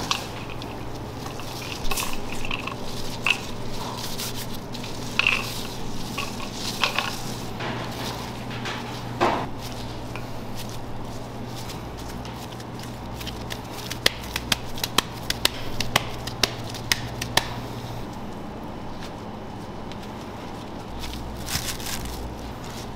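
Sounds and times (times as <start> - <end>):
squishing ground beef: 0.0 - 7.6, 9.4 - 22.9
steady low hum: 0.0 - 22.9
hands slapping beef: 11.6 - 17.7.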